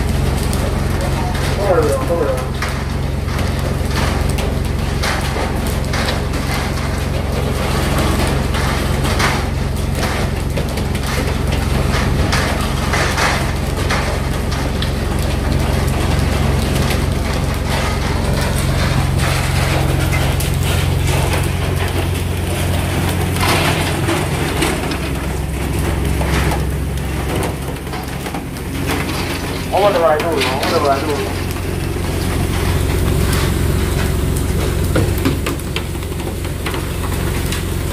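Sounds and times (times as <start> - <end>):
boat engine humming: 13.6 - 37.9
knocks and clatter on deck: 32.1 - 37.9.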